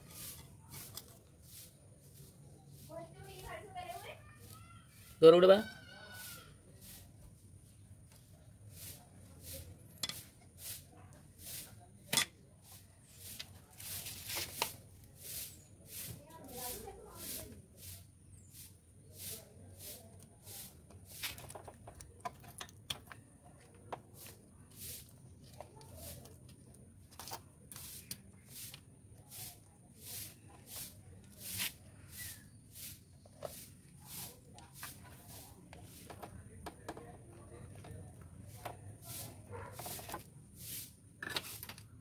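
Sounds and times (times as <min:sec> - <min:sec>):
light scraping: 0:18.6 - 0:41.8.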